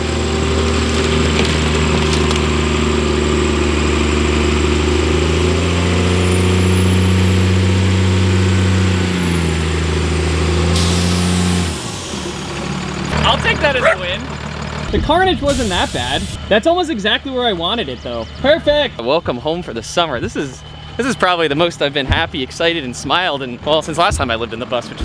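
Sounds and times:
diesel bus engine: 0:00.0 - 0:25.0
hiss: 0:10.8 - 0:11.6, 0:15.5 - 0:16.4.

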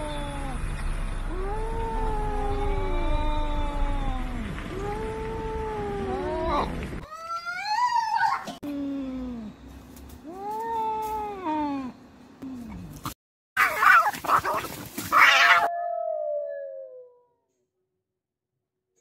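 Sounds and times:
cats growling and yowling: 0:01.3 - 0:08.6, 0:13.6 - 0:17.2
cats screeching: 0:13.6 - 0:15.7.

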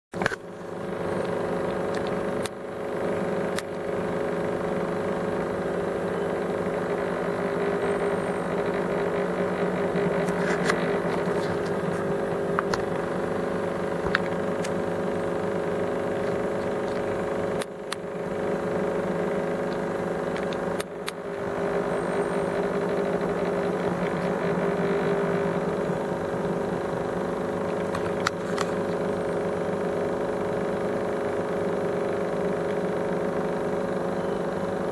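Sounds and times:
aquarium pump humming: 0:00.2 - 0:34.9
clicks: 0:19.6 - 0:21.3, 0:27.7 - 0:29.0.

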